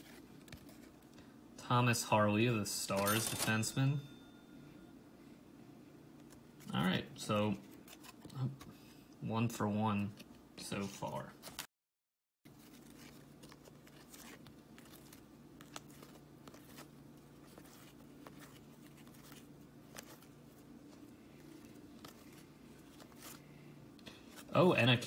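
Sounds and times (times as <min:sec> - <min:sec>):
low steady hum: 0:00.0 - 0:11.6, 0:12.5 - 0:25.0.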